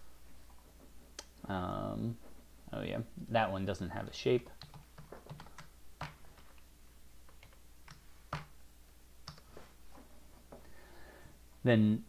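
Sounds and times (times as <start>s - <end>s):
faint keyboard typing: 4.4s - 8.6s, 9.2s - 9.7s.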